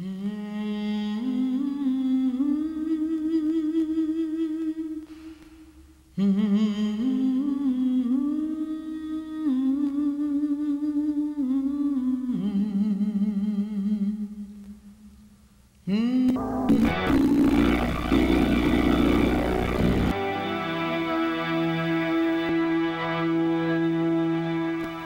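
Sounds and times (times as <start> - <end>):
person humming a slow melody: 0.0 - 5.2, 6.1 - 15.0.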